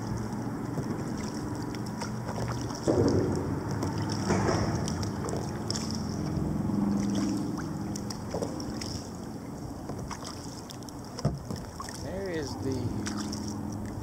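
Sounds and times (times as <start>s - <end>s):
low hum: 0.0s - 11.2s
water splashing against hull: 0.0s - 14.0s.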